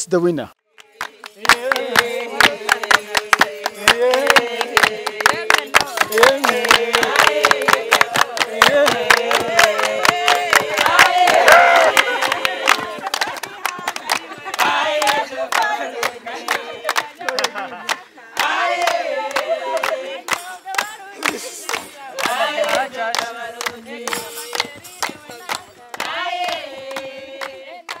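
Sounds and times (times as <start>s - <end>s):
rhythmic hand clapping: 0.8s - 28.0s
women singing: 0.8s - 28.0s
shouts and cheers: 11.3s - 12.0s.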